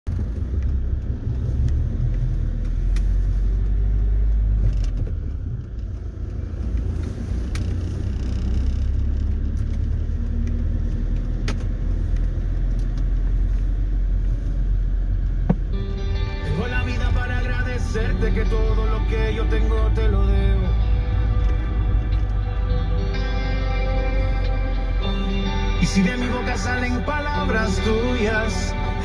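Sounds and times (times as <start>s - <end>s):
vehicle engine and road rumble: 0.0s - 29.0s.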